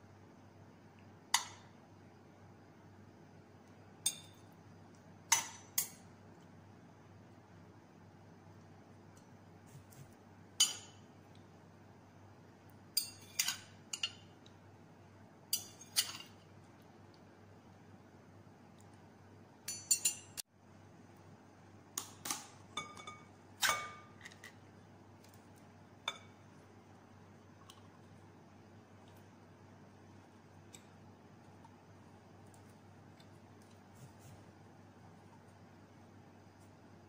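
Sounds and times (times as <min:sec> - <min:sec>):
metal spatula clinking on glass: 0:13.0 - 0:14.2, 0:15.5 - 0:16.4, 0:19.7 - 0:20.4.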